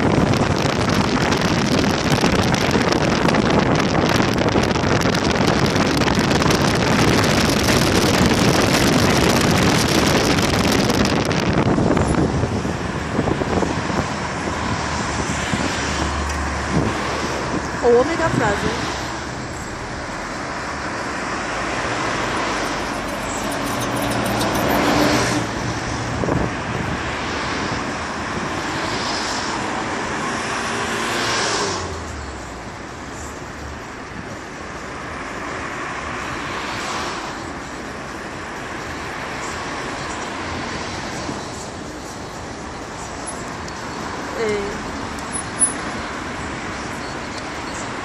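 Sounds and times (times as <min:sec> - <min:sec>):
cars driving past: 0:00.0 - 0:48.0.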